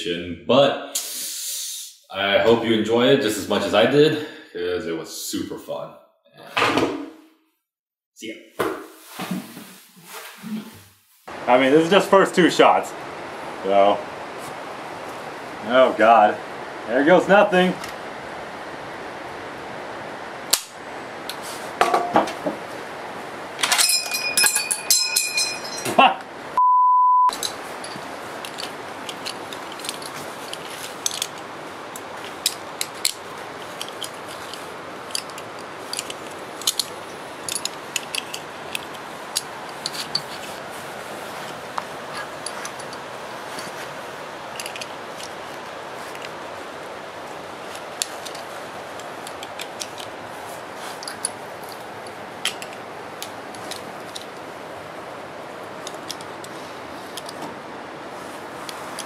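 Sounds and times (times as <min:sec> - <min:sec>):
steady hiss: 0:00.9 - 0:05.8, 0:08.2 - 0:26.6, 0:27.3 - 0:59.0
metallic clicks of rifle handling: 0:33.8 - 0:40.3.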